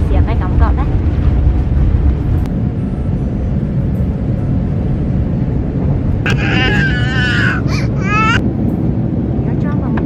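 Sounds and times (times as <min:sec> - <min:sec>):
jet engines rumbling in cabin: 0:00.0 - 0:10.0.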